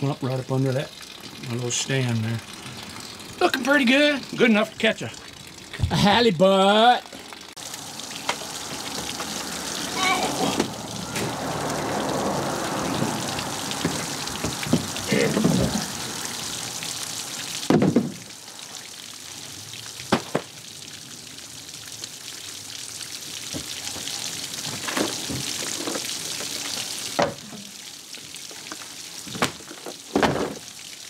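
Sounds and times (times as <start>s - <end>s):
water running in metal boat: 0.0s - 31.0s.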